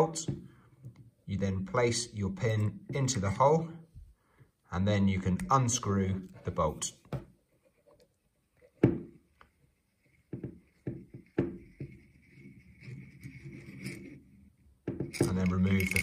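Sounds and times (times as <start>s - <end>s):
threads turning: 7.5s - 16.0s.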